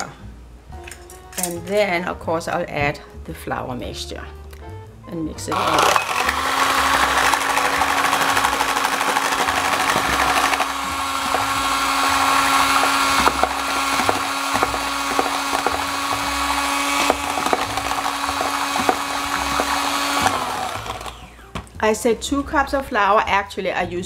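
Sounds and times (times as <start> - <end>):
electric hand mixer running: 5.5 - 21.6.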